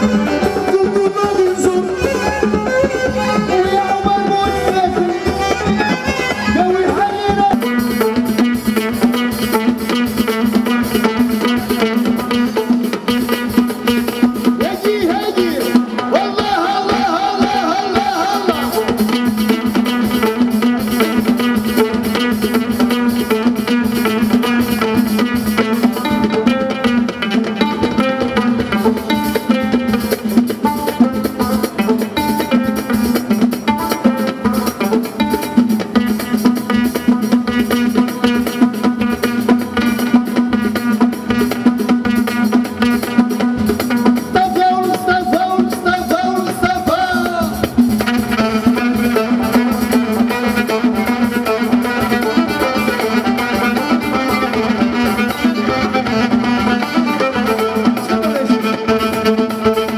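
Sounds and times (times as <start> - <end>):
amplified band playing: 0.0 - 59.9
quick steady drum beat: 0.0 - 59.9
person singing: 14.6 - 19.0, 44.3 - 47.6.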